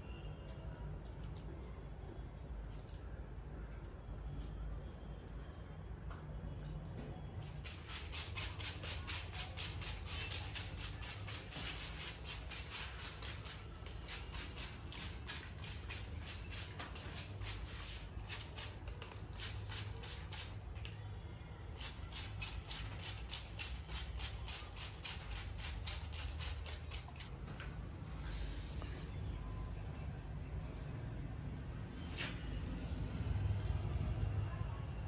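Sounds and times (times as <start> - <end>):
scissors snipping hair: 2.6 - 3.1, 21.8 - 27.4.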